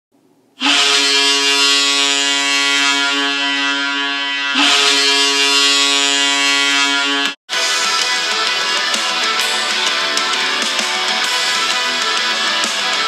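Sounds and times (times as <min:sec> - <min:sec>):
goal horn blasts: 0:00.6 - 0:07.4.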